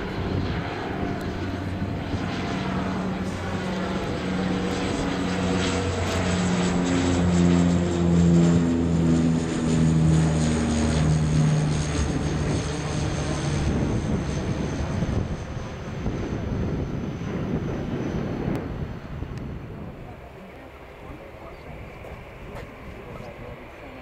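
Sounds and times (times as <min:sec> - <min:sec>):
aircraft engine roar: 0:00.0 - 0:24.0
propeller drone: 0:00.0 - 0:24.0.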